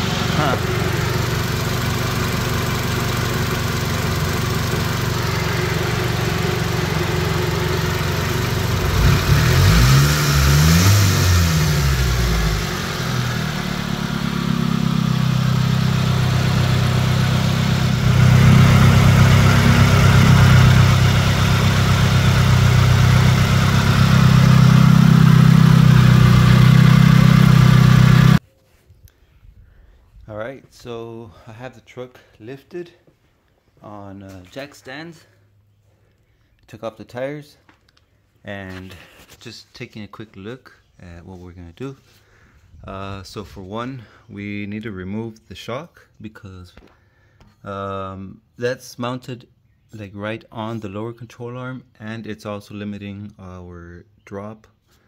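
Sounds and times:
car engine idling and revving: 0:00.0 - 0:28.4.

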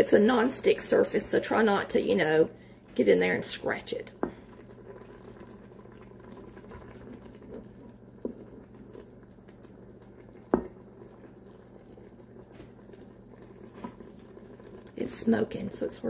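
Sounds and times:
liquid slopping: 0:04.1 - 0:15.1.

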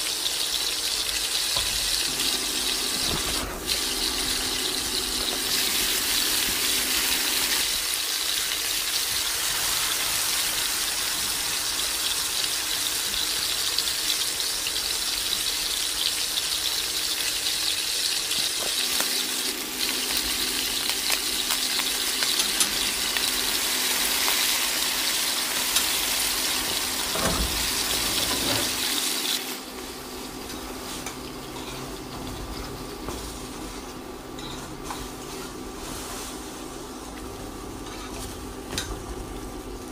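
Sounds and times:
tap water running: 0:00.0 - 0:29.8.

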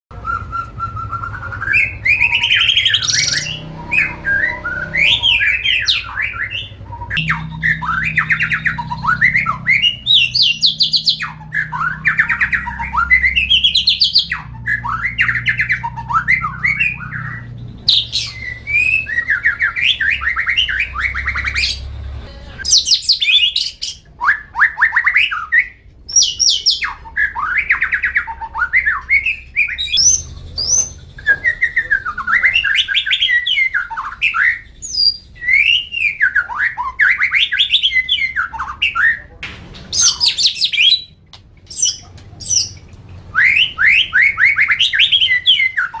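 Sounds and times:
bird singing trills and whistles: 0:00.1 - 0:21.9, 0:22.6 - 0:39.3, 0:39.9 - 0:46.0.

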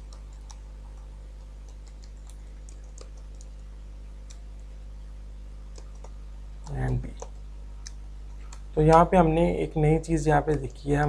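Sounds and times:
keyboard keystroke clicks: 0:00.0 - 0:03.5, 0:05.7 - 0:09.1
low electrical hum: 0:00.0 - 0:11.0.

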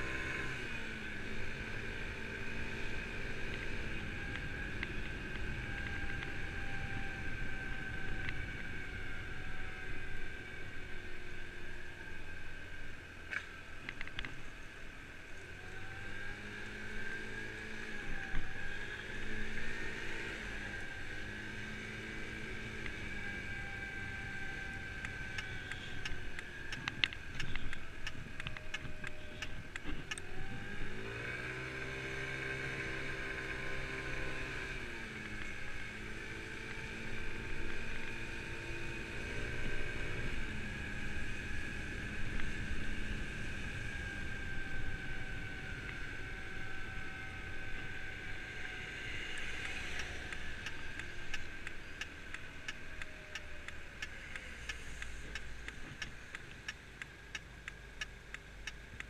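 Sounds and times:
scooter engine running: 0:00.0 - 0:12.9, 0:14.5 - 0:59.0
regular clicks: 0:13.3 - 0:14.4, 0:25.0 - 0:30.9, 0:49.0 - 0:59.0.

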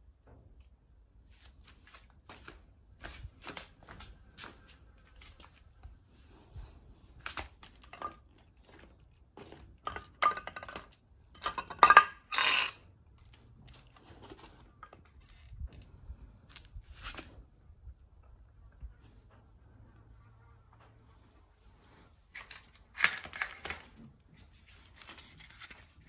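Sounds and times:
parts clicking and clattering: 0:07.2 - 0:15.9, 0:22.3 - 0:25.8.

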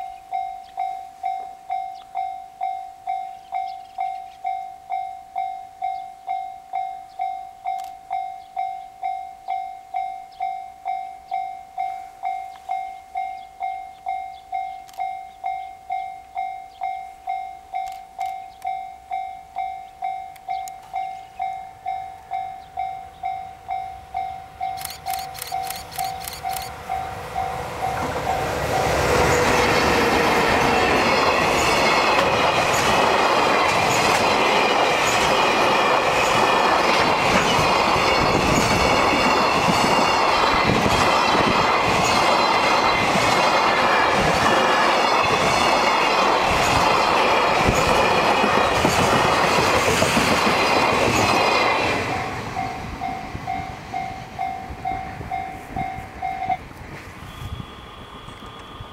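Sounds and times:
level-crossing bell ringing: 0:00.0 - 0:29.0, 0:51.5 - 0:56.6
train passing: 0:00.0 - 0:58.9.

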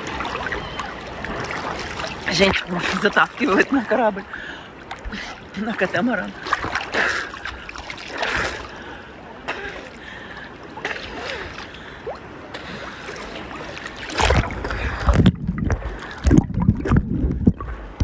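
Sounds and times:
small waves splashing: 0:00.0 - 0:18.0
muffled underwater thumps: 0:14.2 - 0:18.0.

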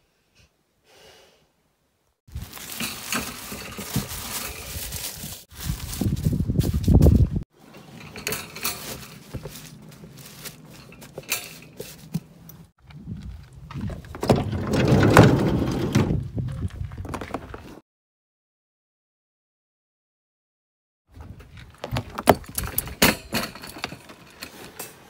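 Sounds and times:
pads and towels rustling: 0:02.3 - 0:07.2, 0:08.5 - 0:12.4.

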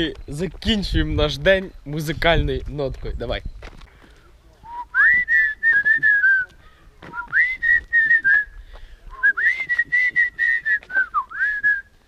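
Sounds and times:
person whistling a tune: 0:04.7 - 0:06.5, 0:07.2 - 0:12.0.

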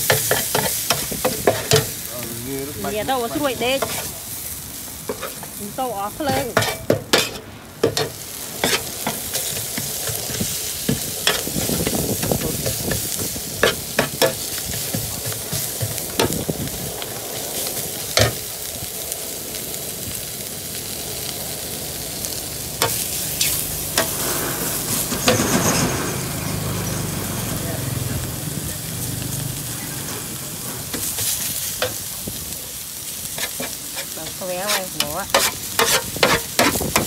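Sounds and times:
metal spatula scraping a pan: 0:00.0 - 0:02.0, 0:02.8 - 0:04.1, 0:05.0 - 0:16.4, 0:22.8 - 0:26.6, 0:33.2 - 0:37.0
greens sizzling in a wok: 0:00.0 - 0:37.0.

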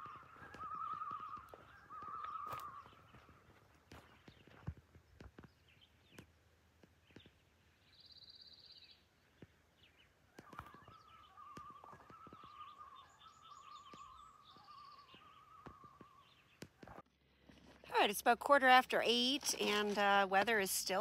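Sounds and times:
loon tremolo calls: 0:00.0 - 0:03.3, 0:10.4 - 0:16.5
songbird trills: 0:00.0 - 0:06.3, 0:07.0 - 0:17.0.

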